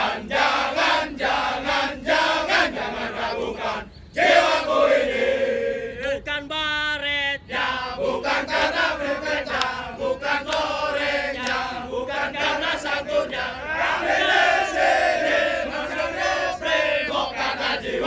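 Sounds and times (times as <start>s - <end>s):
men chanting in unison: 0.0s - 18.0s.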